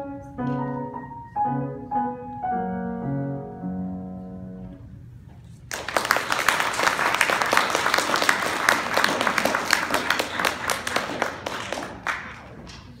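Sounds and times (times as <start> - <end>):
audience applauding: 5.7 - 13.0
hands clapping close by: 5.7 - 13.0.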